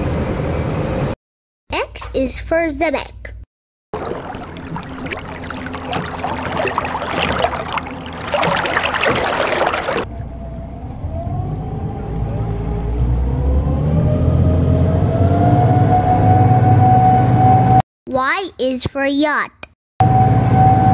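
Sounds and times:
water splashing and sloshing: 4.0 - 10.4.

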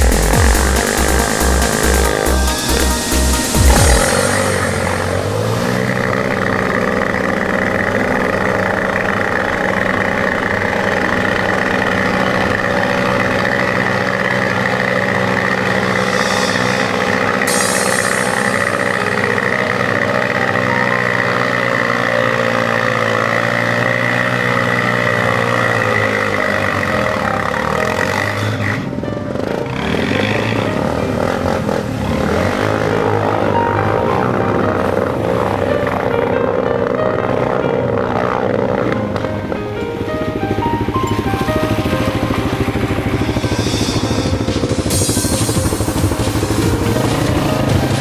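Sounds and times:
quad bike engine running: 0.0 - 48.0.

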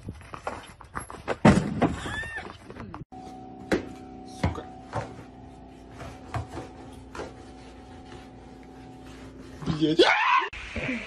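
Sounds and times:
mop knocking and scraping: 3.8 - 9.7.

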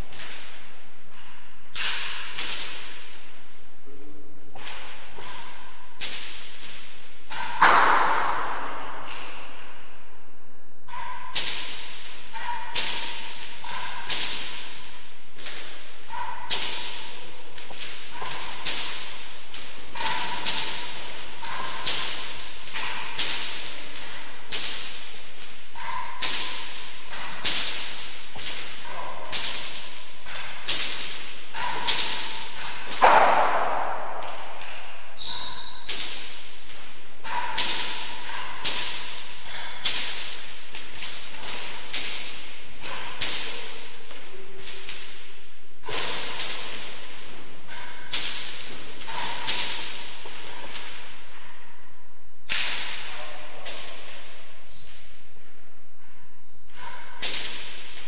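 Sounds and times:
ball hitting walls and floor: 0.0 - 10.2, 10.8 - 55.4, 56.4 - 58.0
racquets striking ball: 4.5 - 9.6, 10.9 - 45.2, 45.8 - 51.4.

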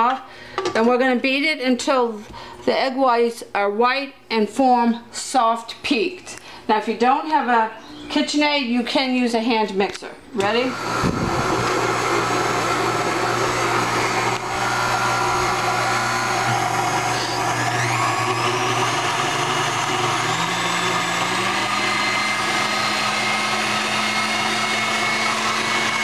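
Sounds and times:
stand mixer motor humming: 10.7 - 26.0.

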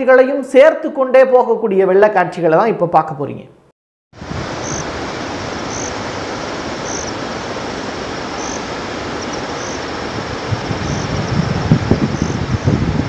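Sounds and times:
flooded river rushing: 4.2 - 13.0.

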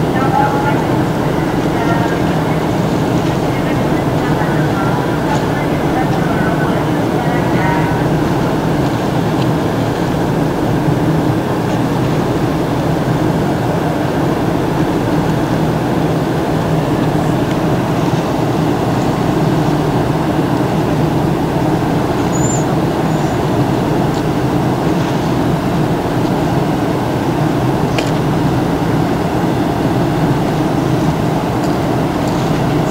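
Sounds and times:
ship engines droning: 0.0 - 32.9
faint high chirp: 22.3 - 23.4.

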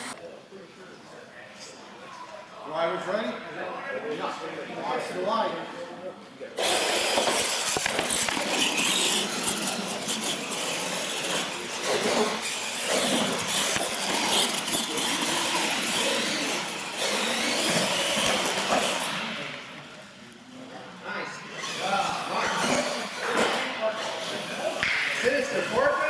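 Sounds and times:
rc trucks racing on concrete: 6.6 - 20.6, 21.4 - 26.0.

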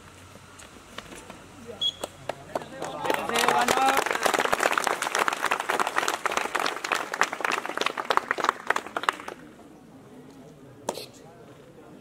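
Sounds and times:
group of people clapping: 2.0 - 9.6.

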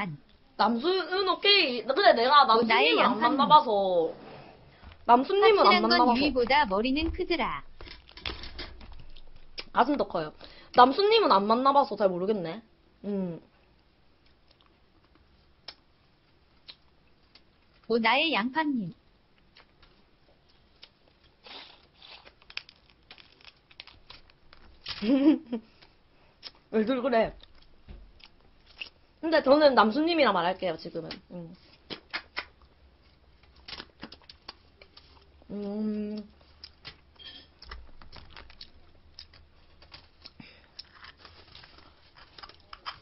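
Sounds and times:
chewing: 14.2 - 15.8, 36.1 - 43.0
crab shells cracking: 21.3 - 25.0, 36.6 - 43.0.

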